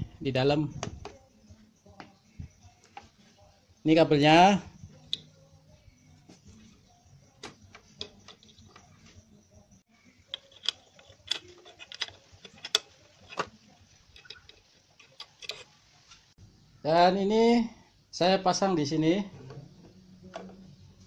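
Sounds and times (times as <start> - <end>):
plastic connectors clicking: 10.3 - 13.5.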